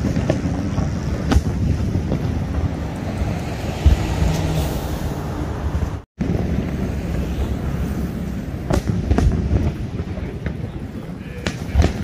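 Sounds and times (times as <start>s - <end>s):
distant fireworks bursting: 0.0s - 5.0s, 6.2s - 12.0s
wind on microphone: 0.0s - 12.0s
low thump: 3.8s - 4.4s.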